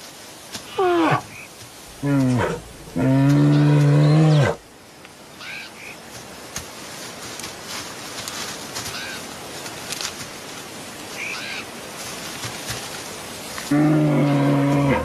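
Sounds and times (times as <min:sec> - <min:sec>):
animal calling low drawn-out: 0:01.9 - 0:04.6, 0:13.7 - 0:15.0.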